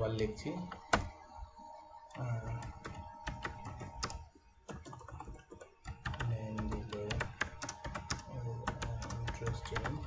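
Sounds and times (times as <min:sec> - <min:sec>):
computer keyboard typing: 0:02.2 - 0:10.0.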